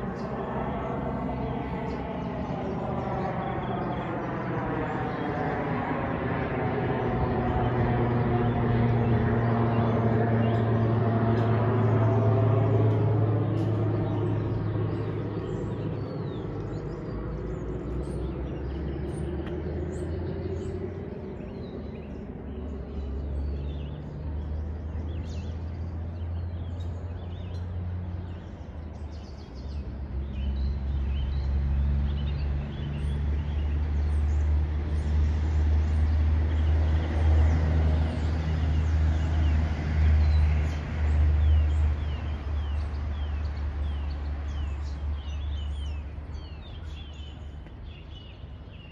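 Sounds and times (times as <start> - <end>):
small birds chirping: 0.0 - 6.2, 6.8 - 48.9
steady low rumble: 0.0 - 31.8
vehicle passing: 0.0 - 47.6.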